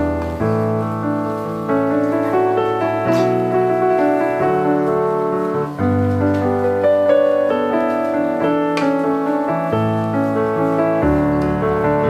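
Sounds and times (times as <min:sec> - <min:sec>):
background piano music: 0:00.0 - 0:12.0.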